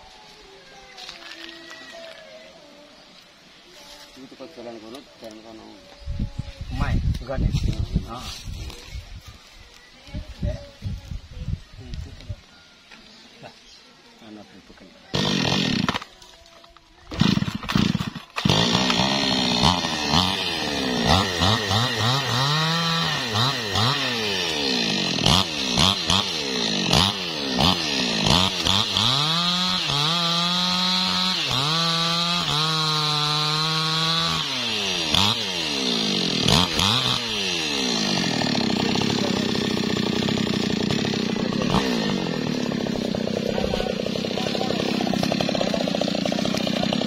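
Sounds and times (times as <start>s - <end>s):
chainsaw cutting log: 15.1s - 16.3s, 17.0s - 47.0s.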